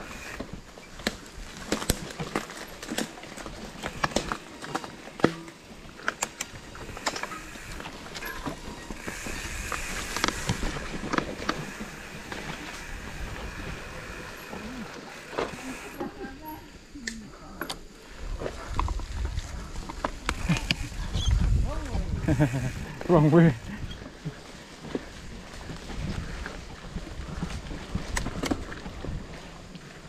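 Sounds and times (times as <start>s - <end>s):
bike frame rattling and clicking: 0.8s - 16.1s.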